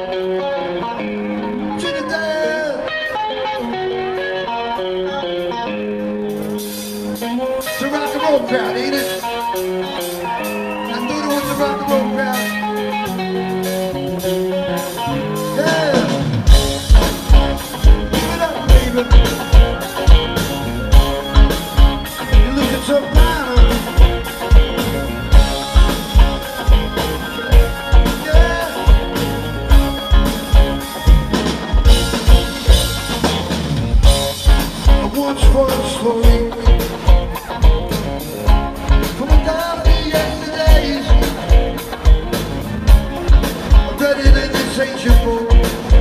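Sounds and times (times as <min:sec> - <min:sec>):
live rock band: 0:00.0 - 0:46.0
heavy drum beat: 0:15.2 - 0:46.0.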